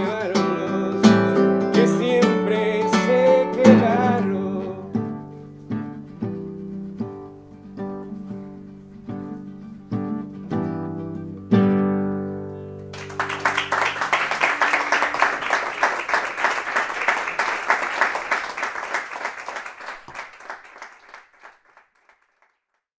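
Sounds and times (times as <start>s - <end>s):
audience applauding: 12.9s - 22.8s.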